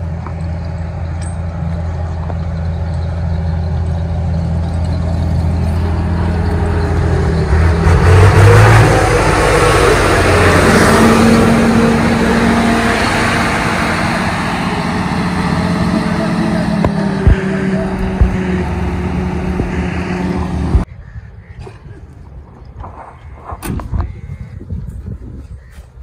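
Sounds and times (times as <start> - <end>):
heavy truck engine running: 0.0 - 20.9.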